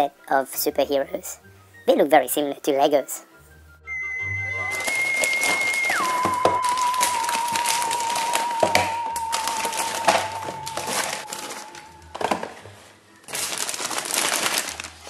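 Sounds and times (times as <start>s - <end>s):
held music tone: 3.4s - 13.4s
plastic bag crinkling: 4.7s - 15.0s.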